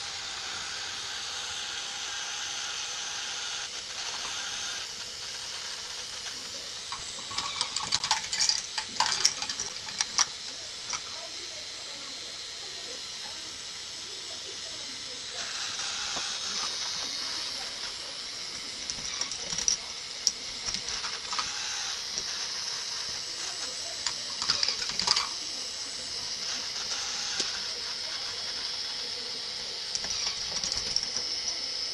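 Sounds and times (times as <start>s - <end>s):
small plastic clicks and rattles: 6.4s - 11.1s, 18.6s - 25.4s, 29.9s - 31.6s
steady high hiss: 8.6s - 31.9s.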